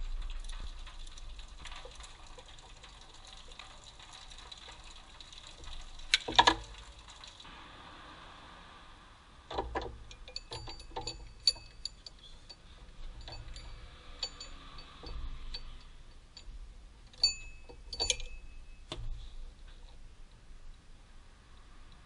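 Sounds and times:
metal tools clinking on engine parts: 10.1 - 18.9.

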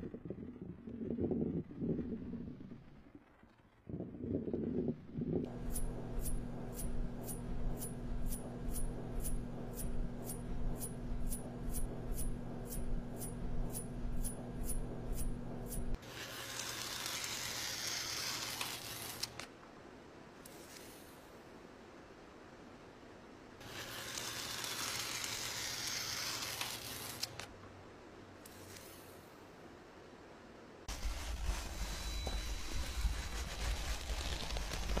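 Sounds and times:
low hum: 0.0 - 16.0, 30.9 - 35.0
sharp ticks: 5.5 - 16.0
faint hiss: 19.5 - 24.0.

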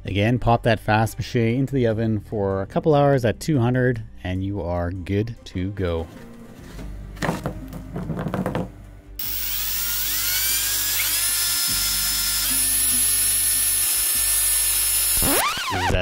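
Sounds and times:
cordless drill whining: 9.2 - 15.8.

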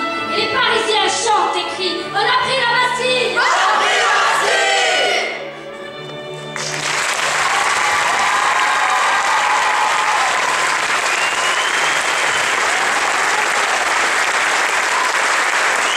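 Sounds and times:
audience applauding: 6.6 - 15.9
voices cheering: 7.3 - 15.9.

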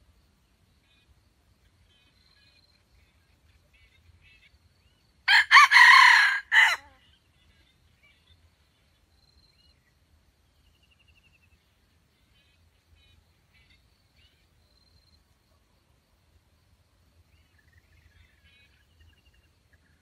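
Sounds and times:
rooster crowing: 5.3 - 7.0.

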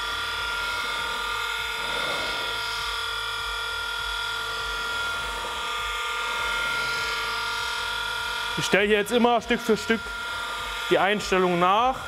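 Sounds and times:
grinding machine motor whining: 0.0 - 12.0.

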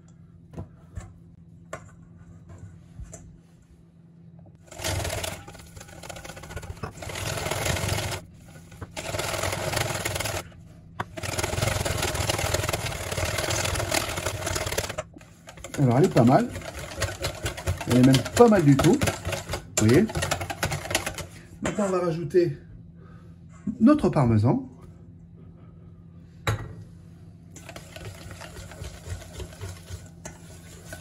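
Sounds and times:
whisk beating in steel bowl: 4.7 - 21.4, 27.6 - 31.0.

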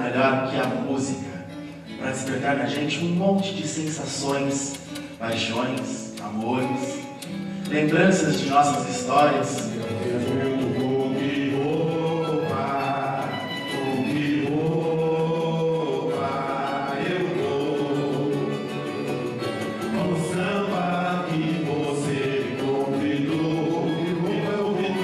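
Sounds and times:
acoustic guitars strumming: 0.0 - 25.0
men singing together: 7.7 - 25.0.

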